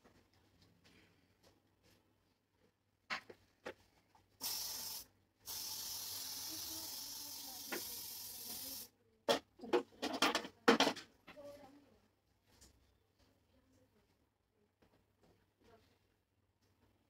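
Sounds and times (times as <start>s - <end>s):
aerosol hairspray hissing: 4.4s - 8.9s.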